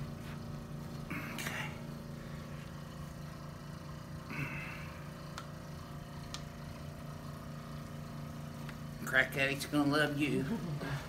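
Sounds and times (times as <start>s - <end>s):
low mechanical hum: 0.0s - 11.0s
breathy hiss: 4.2s - 5.2s.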